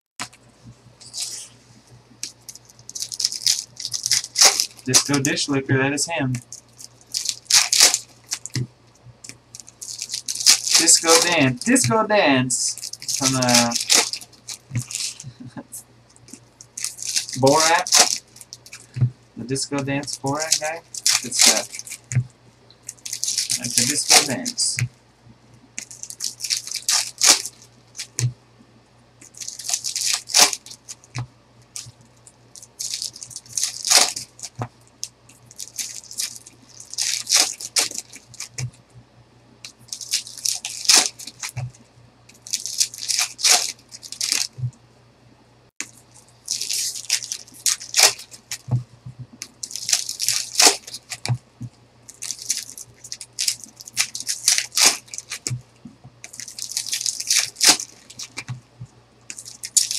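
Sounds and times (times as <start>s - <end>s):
foil card wrappers crinkling: 2.2s - 22.2s, 22.8s - 24.9s, 25.8s - 28.3s, 29.2s - 38.8s, 39.6s - 44.6s, 45.8s - 51.4s, 52.0s - 55.6s, 56.2s - 58.6s, 59.2s - 59.9s
card clicking on card: 23.6s - 24.8s.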